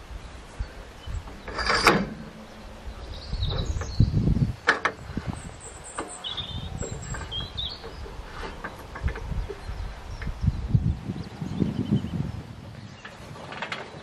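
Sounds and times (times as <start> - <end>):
low rumbling: 0.0 - 13.3
birds chirping faintly: 0.0 - 14.0
metal scraping clatter: 1.1 - 4.0.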